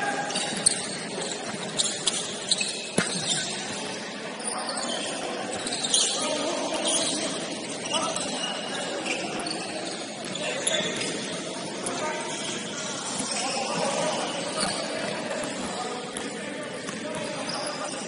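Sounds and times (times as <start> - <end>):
shoe squeaks: 0.0 - 16.3, 17.0 - 18.0.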